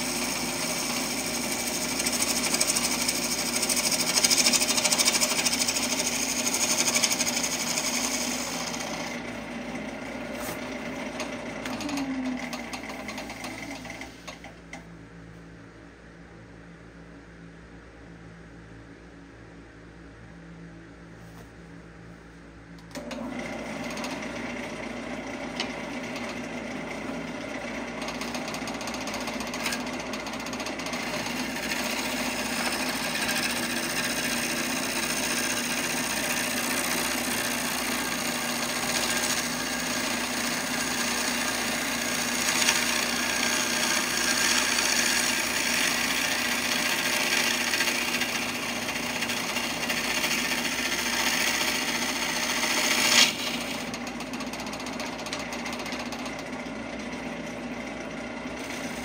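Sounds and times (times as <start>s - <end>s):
gouge cutting wood: 0.0s - 9.2s, 28.0s - 54.0s, 58.6s - 59.0s
lathe low hum: 0.0s - 59.0s.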